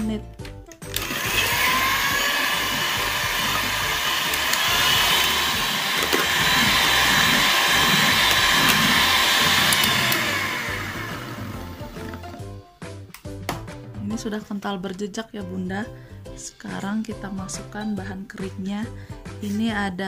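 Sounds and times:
electric hand mixer whirring: 0.9s - 12.6s.

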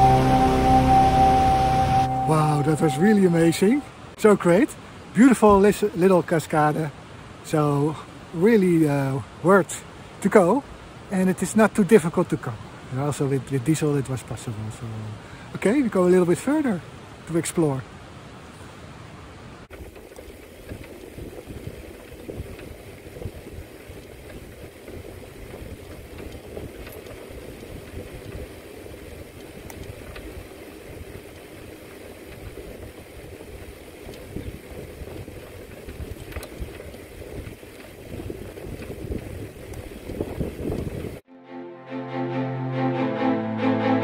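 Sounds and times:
bicycle riding on paved road: 19.7s - 41.2s
wind buffeting microphone: 19.7s - 41.2s.

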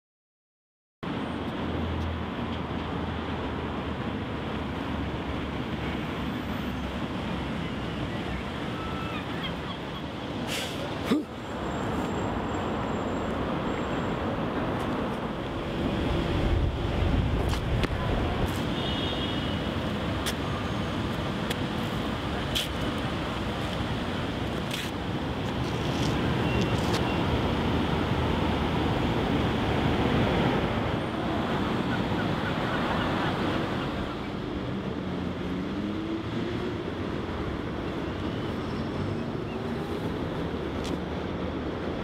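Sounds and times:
steady rushing noise: 14.2s - 42.0s.

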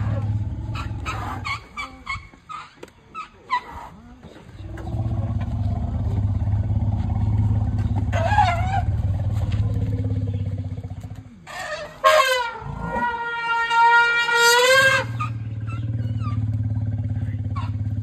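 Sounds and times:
elephant low rumble: 0.0s - 18.0s
elephant trumpeting squeals: 0.3s - 4.0s, 8.0s - 9.2s, 11.5s - 16.5s.

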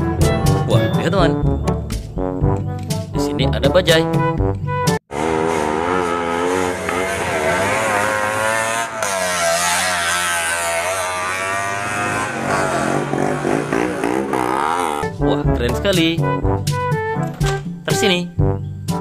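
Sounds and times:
auto-rickshaw engine revving: 5.1s - 15.2s.

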